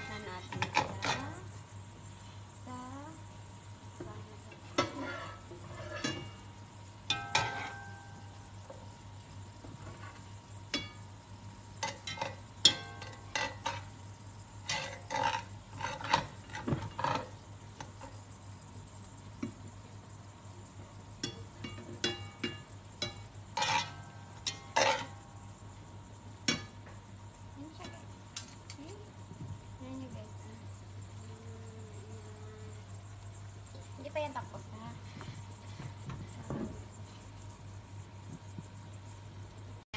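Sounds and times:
metal utensils clinking on pot: 0.0s - 1.4s, 4.7s - 6.4s, 7.1s - 8.2s, 11.8s - 13.9s, 14.6s - 17.3s, 21.2s - 25.3s
faint sizzle of hot oil: 0.0s - 39.9s.

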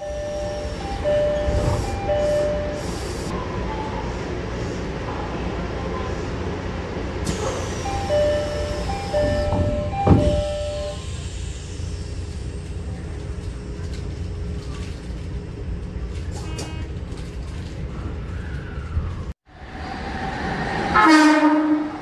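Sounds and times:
train rumbling: 0.0s - 22.0s
train door banging shut: 8.4s - 11.0s
train horn: 21.0s - 22.0s.

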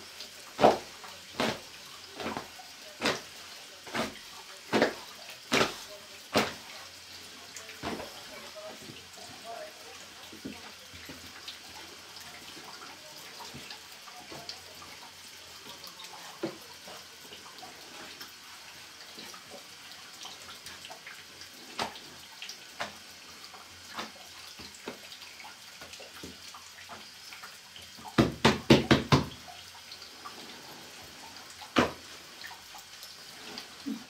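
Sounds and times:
hands patting dough on board: 2.2s - 6.7s, 28.1s - 29.4s.

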